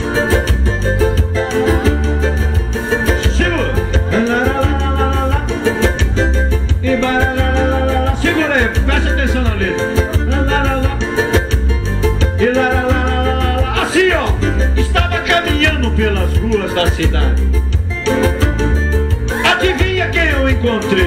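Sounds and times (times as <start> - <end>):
electronic keyboard music: 0.0 - 21.0.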